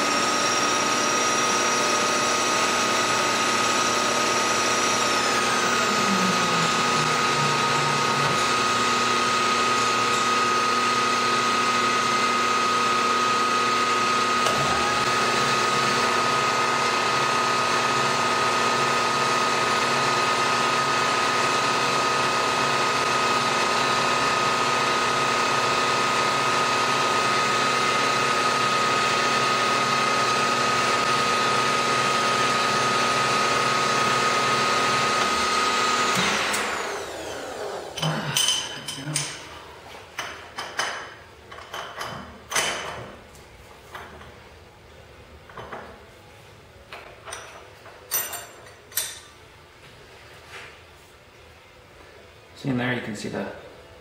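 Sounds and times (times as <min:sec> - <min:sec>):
milling machine whine: 0:00.0 - 0:39.6.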